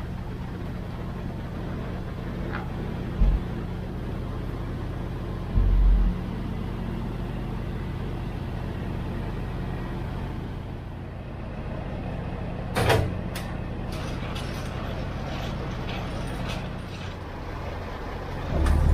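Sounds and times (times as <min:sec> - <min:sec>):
diesel truck engine running: 0:00.0 - 0:18.9
deep thump: 0:03.2 - 0:03.5.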